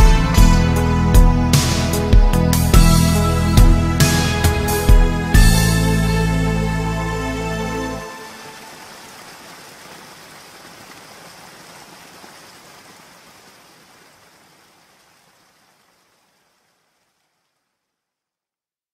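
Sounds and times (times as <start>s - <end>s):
rain falling: 4.2s - 18.2s.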